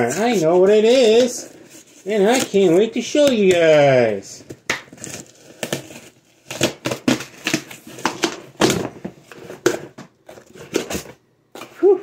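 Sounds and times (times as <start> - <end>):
cardboard box tearing open: 5.0 - 8.9.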